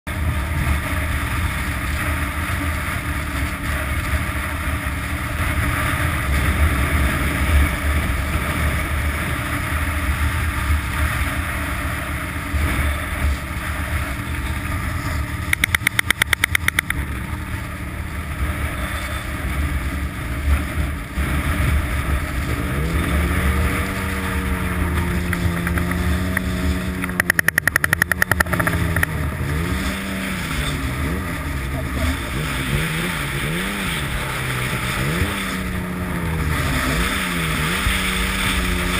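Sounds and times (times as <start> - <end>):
snowmobile engine: 0.1 - 38.9
rapid rattle of clicks: 15.5 - 17.0, 25.3 - 29.2.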